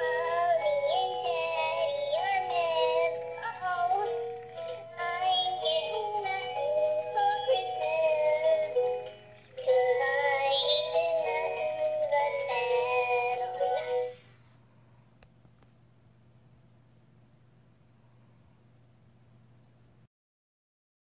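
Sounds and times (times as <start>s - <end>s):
toy singing with music: 0.0s - 14.2s.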